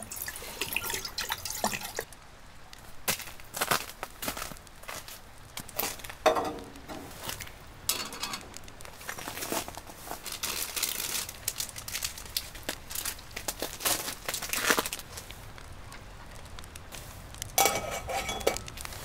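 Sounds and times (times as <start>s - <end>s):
metal cup clink: 6.3s - 7.1s, 7.9s - 8.5s, 17.6s - 18.7s.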